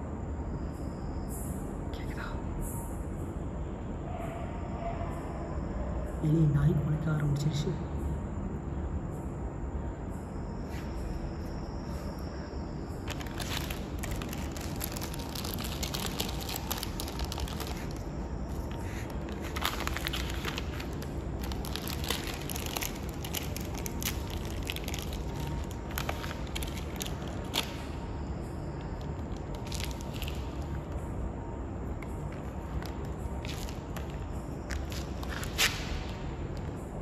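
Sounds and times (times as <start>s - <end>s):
low background noise: 0.0s - 37.0s
plastic packet crinkling: 13.0s - 27.9s, 28.8s - 31.0s.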